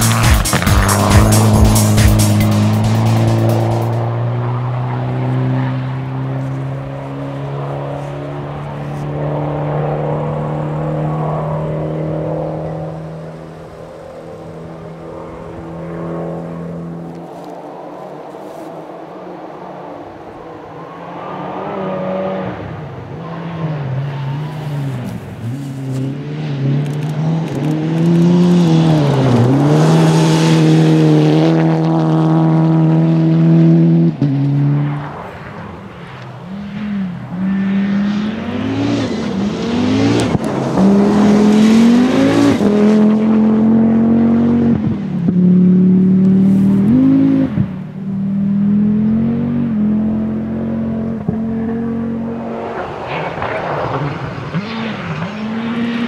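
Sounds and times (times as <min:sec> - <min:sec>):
rally car engine revving: 0:00.0 - 0:18.8, 0:19.6 - 0:56.0.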